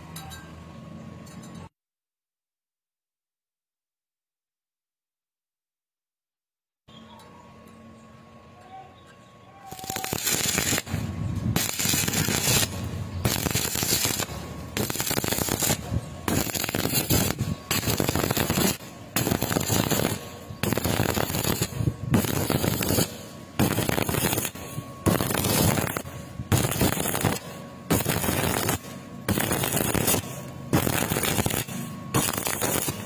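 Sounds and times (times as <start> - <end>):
welding arc crackling: 9.7 - 33.0.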